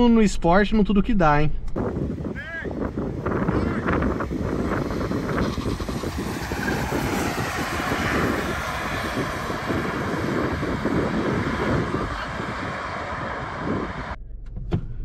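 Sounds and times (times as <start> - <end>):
cars accelerating hard: 2.8 - 14.2.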